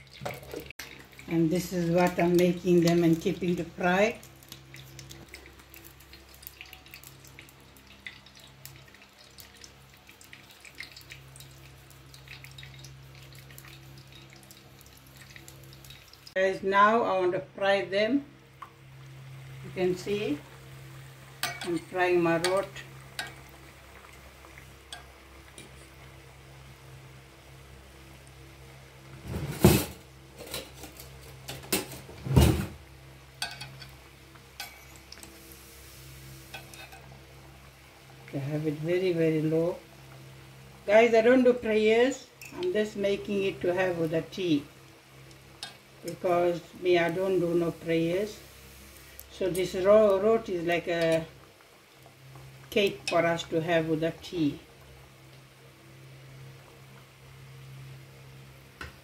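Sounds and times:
hot fat crackling and popping: 0:00.0 - 0:16.4
ghee frying: 0:00.0 - 0:59.0
low steady hum: 0:00.0 - 0:59.0.

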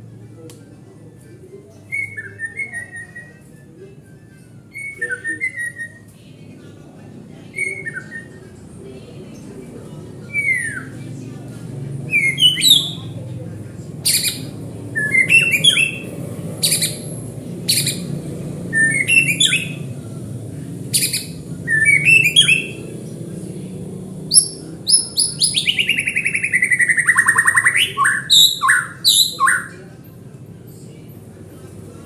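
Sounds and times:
bird singing whistled notes: 0:01.8 - 0:03.5, 0:04.2 - 0:06.1, 0:07.5 - 0:08.4, 0:12.1 - 0:13.2, 0:14.0 - 0:18.1, 0:18.7 - 0:19.8, 0:20.9 - 0:22.9, 0:24.3 - 0:29.7.

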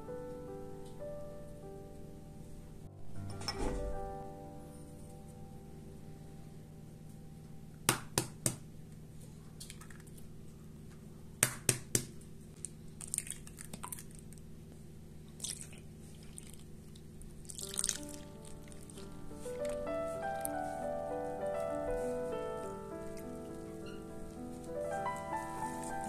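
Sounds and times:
eggs cracking with sharp taps: 0:11.4 - 0:14.5
soft wet squelches: 0:12.5 - 0:20.6
milk pouring into bowl: 0:13.0 - 0:14.4, 0:15.4 - 0:19.0.

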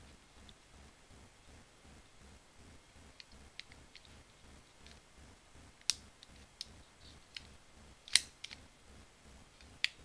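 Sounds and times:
plastic toy parts clicking: 0:08.1 - 0:08.6.

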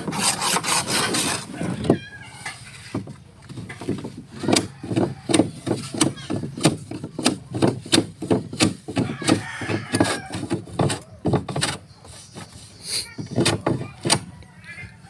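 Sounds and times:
tool striking wood: 0:03.0 - 0:11.8, 0:13.4 - 0:14.3.

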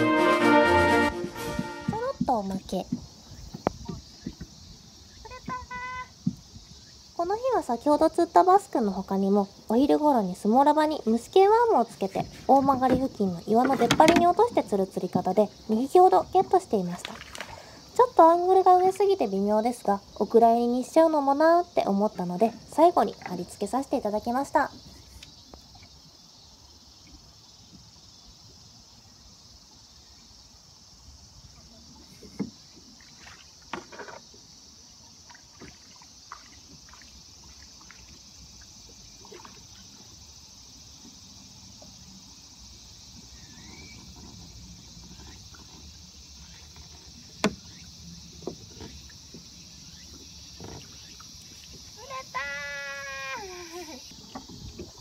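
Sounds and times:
insect chorus: 0:00.0 - 0:55.0
knocks and taps on boat: 0:01.4 - 0:04.6, 0:05.3 - 0:06.7, 0:12.2 - 0:15.4, 0:32.2 - 0:32.6, 0:46.8 - 0:49.5.

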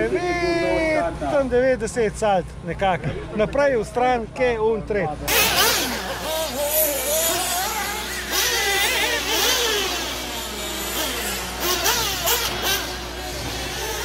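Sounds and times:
rc car motors whining: 0:05.3 - 0:14.0.

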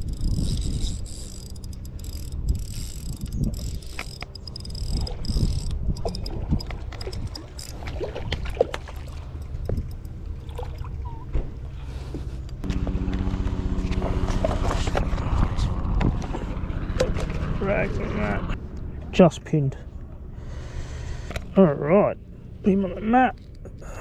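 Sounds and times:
fishing reel clicking and whirring: 0:00.0 - 0:07.9, 0:08.9 - 0:10.9
low rumble: 0:00.0 - 0:24.0.

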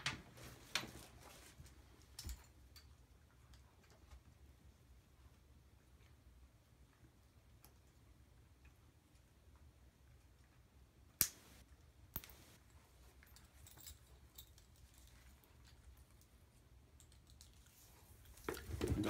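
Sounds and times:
leash hardware rustling: 0:12.2 - 0:16.2.

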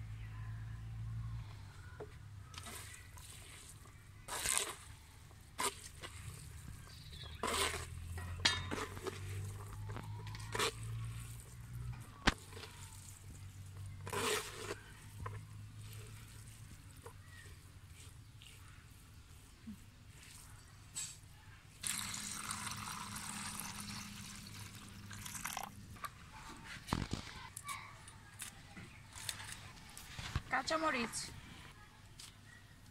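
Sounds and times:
noodles squishing in colander: 0:02.4 - 0:31.0.

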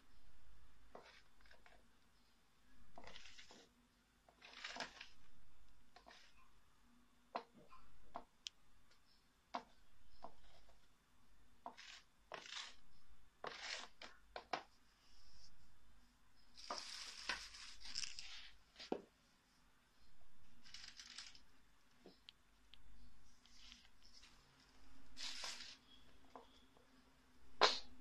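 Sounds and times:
plastic parts scraping and rustling: 0:02.9 - 0:03.7, 0:04.3 - 0:05.3, 0:16.5 - 0:19.0, 0:20.5 - 0:22.3, 0:23.3 - 0:26.6.

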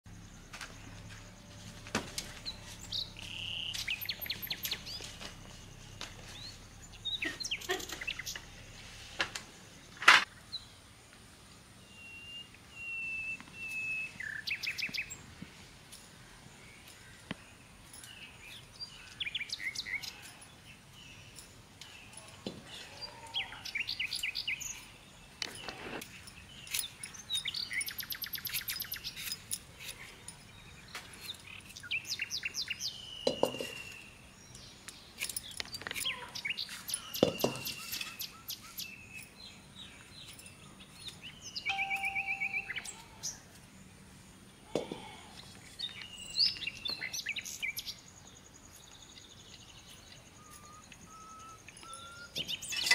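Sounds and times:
small birds chirping and trilling: 0:00.1 - 0:52.9.

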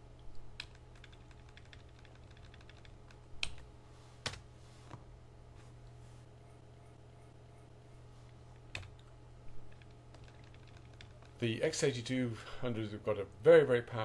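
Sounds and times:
steady low hum: 0:00.0 - 0:14.0
computer keyboard clicks: 0:00.6 - 0:03.6, 0:09.7 - 0:11.4.

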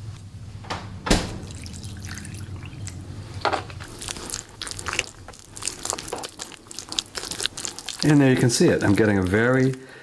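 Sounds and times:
milk pouring into bowl: 0:01.5 - 0:03.0, 0:03.7 - 0:09.8
potato masher squelching: 0:03.7 - 0:09.8.

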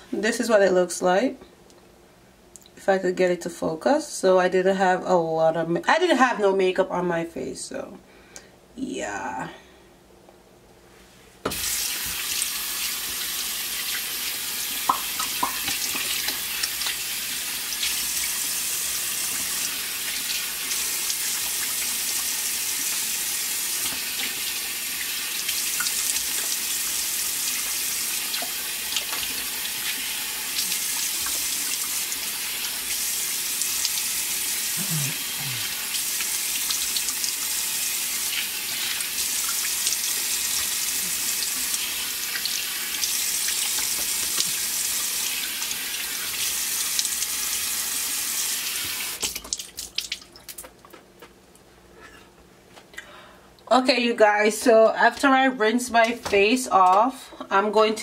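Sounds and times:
tap running into sink: 0:11.5 - 0:12.3, 0:14.9 - 0:17.0
water splashing face rinsing: 0:11.5 - 0:50.8.

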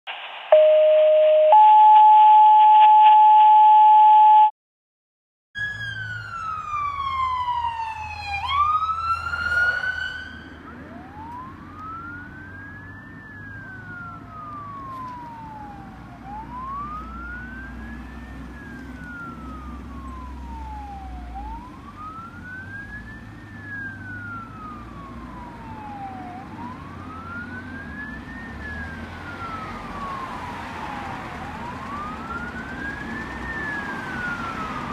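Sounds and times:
two-tone radio alert: 0:00.1 - 0:04.5
electronic siren wailing: 0:00.2 - 0:04.5, 0:05.6 - 0:34.9.

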